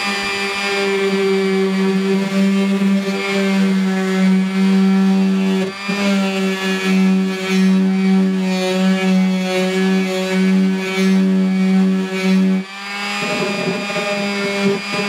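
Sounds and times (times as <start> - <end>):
orbital sander sanding: 0.0 - 15.0.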